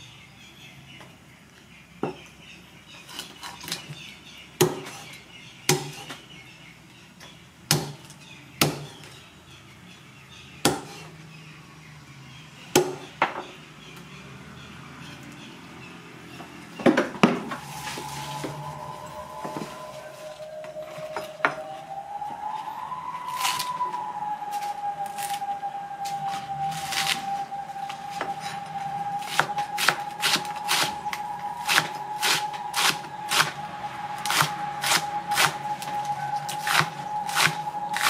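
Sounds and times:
cleaver chopping on wooden block: 4.6s - 5.0s, 5.7s - 6.0s, 7.7s - 8.0s, 8.6s - 9.0s, 10.6s - 11.0s, 12.8s - 13.0s.

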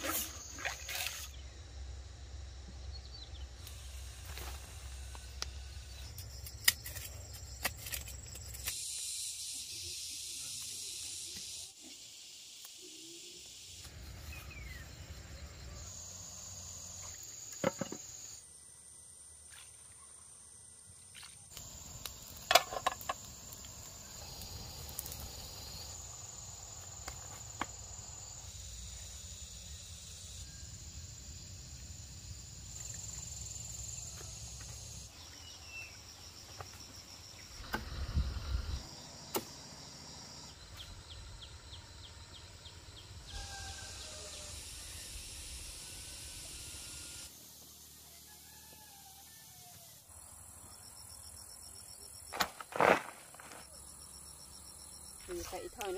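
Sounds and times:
insects droning: 0.0s - 55.9s
wind rumble on microphone: 37.8s - 38.8s.

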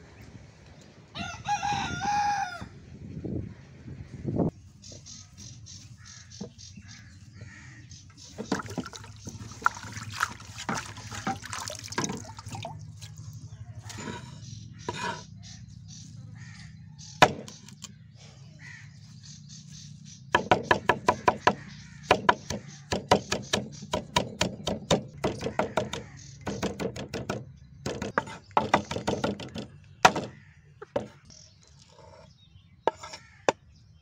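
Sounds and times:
water splashing and dripping: 8.4s - 13.4s
cleaver chopping on wooden board: 17.2s - 17.8s, 20.4s - 31.1s, 32.9s - 33.6s.

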